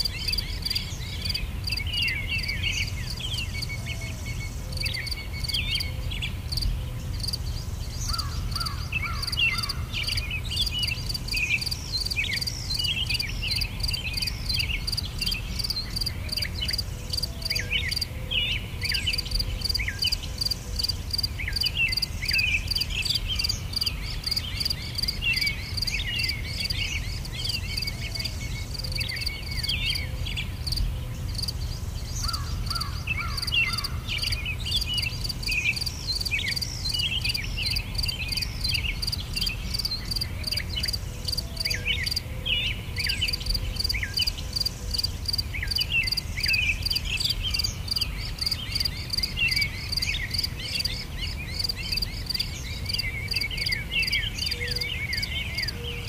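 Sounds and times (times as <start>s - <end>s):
birds chirping: 0.0s - 56.0s
crickets chirping: 0.0s - 56.0s.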